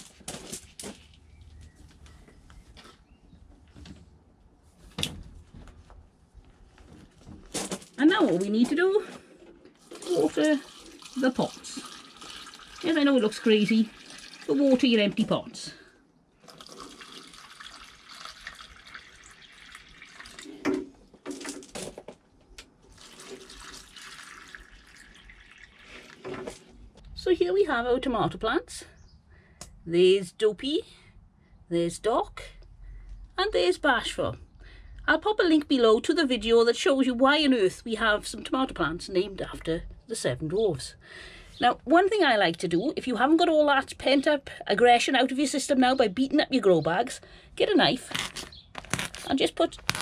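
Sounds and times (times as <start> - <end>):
rustling and knocks of plant pot: 0.0 - 10.2, 20.5 - 23.6
water pouring and splashing: 9.7 - 15.3, 16.4 - 21.2, 22.8 - 26.7.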